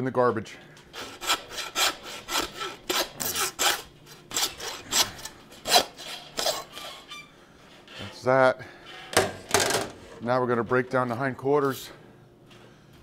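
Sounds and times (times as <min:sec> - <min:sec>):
hand saw cutting bone: 0:00.9 - 0:07.1.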